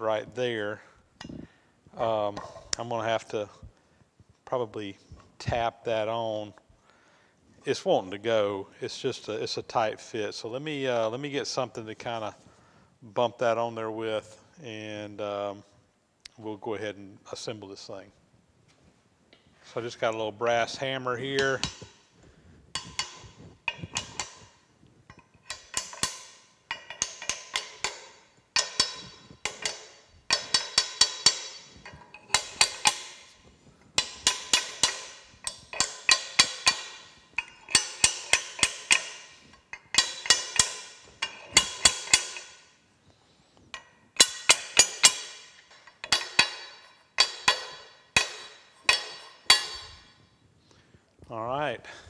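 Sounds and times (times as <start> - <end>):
hammer tapping on metal: 34.0 - 42.5.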